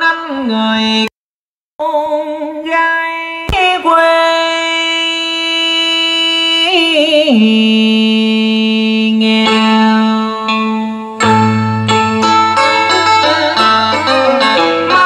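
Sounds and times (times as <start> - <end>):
person singing on radio: 0.0 - 1.1, 1.8 - 11.2
music accompaniment with bass: 6.7 - 15.0.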